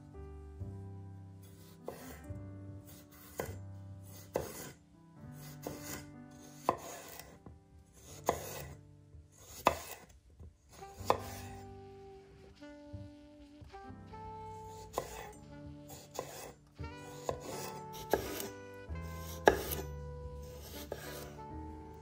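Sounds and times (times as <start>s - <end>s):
soft background music: 0.0s - 22.0s
knife slicing potato: 1.6s - 4.8s, 5.4s - 8.8s, 9.4s - 11.6s, 14.6s - 21.4s
knife knocking on wooden board: 14.9s - 15.3s, 19.4s - 19.8s.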